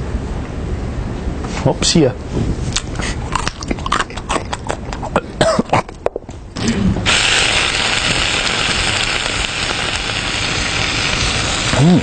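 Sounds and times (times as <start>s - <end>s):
crunchy snack eating: 2.7s - 6.0s
loud steady hiss: 6.6s - 12.0s.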